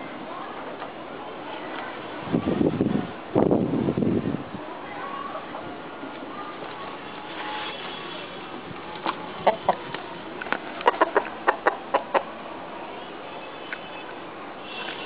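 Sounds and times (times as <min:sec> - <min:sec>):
chickens clucking: 0:09.0 - 0:10.0, 0:10.8 - 0:12.4.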